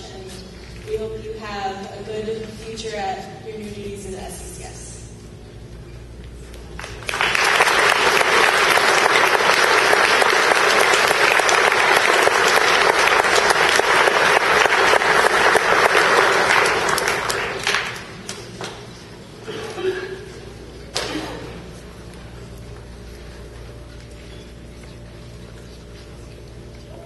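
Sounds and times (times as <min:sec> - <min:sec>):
audience applauding: 0:06.8 - 0:18.8.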